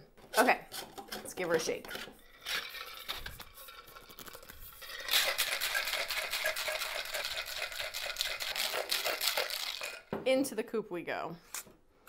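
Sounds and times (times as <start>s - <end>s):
ice rattling in cocktail shaker: 0.7s - 10.1s
shaker handling: 2.7s - 10.1s.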